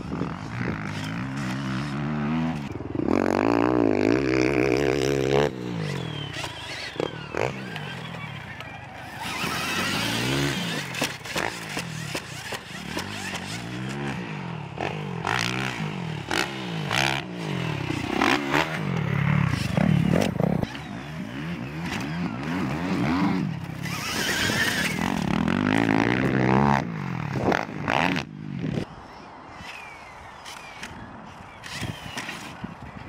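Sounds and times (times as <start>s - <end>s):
dirt bike engine revving: 0.0s - 28.9s.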